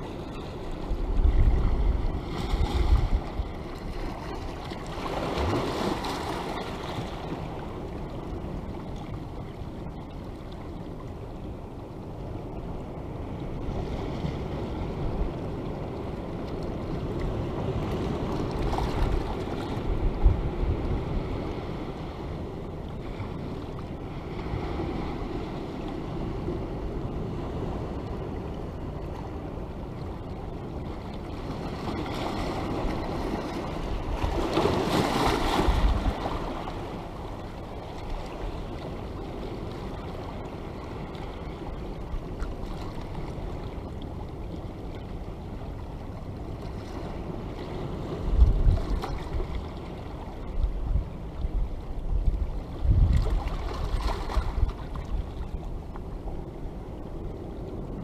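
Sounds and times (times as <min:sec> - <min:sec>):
waves washing over rocks: 0:00.0 - 0:07.8, 0:31.3 - 0:41.2
wind buffeting microphone: 0:00.0 - 0:08.7, 0:12.9 - 0:22.4, 0:48.0 - 0:56.8.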